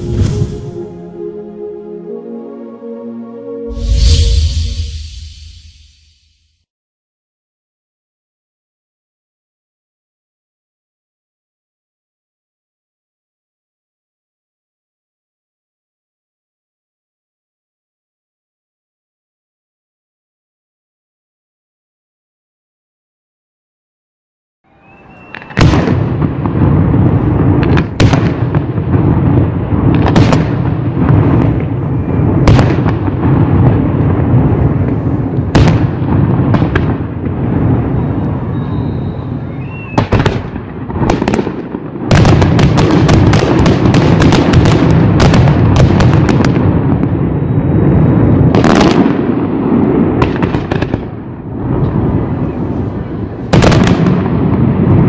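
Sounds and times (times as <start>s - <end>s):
fireworks bangs: 0.0s - 1.2s, 24.8s - 55.0s.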